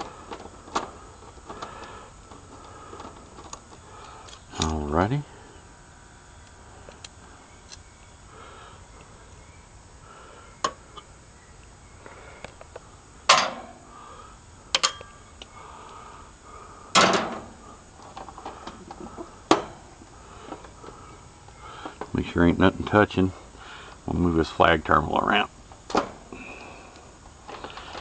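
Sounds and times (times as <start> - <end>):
tools and parts clicking and knocking: 13.3 - 13.7, 14.7 - 15.2.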